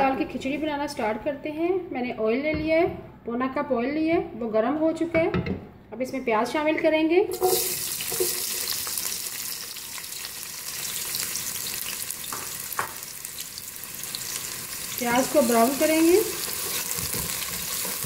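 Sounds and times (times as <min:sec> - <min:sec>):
onions sizzling in hot oil: 0:07.3 - 0:18.0.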